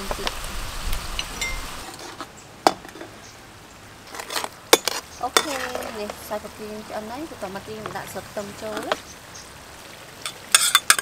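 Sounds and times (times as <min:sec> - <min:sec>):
spoon stirring in a pan: 0:04.1 - 0:06.3.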